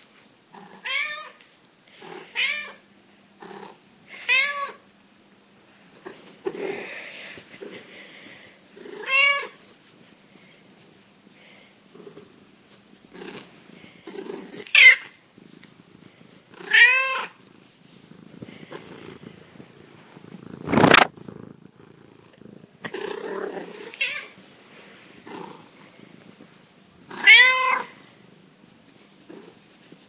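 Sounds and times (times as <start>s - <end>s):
soft rustling: 5.7s - 30.0s
sharp kitten cry: 16.7s - 17.4s, 27.2s - 27.9s
loud brief noise: 20.7s - 21.1s
kitten meowing: 27.2s - 27.9s.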